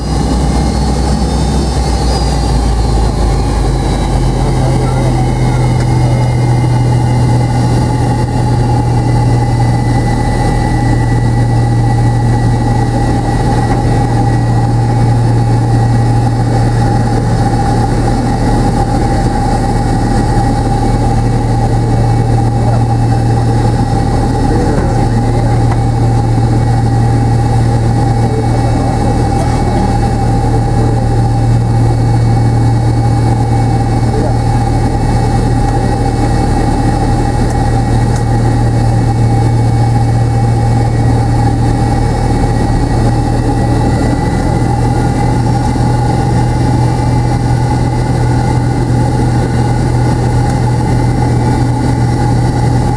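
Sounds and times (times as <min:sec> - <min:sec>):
airplane cabin engine drone: 0:00.0 - 0:52.9.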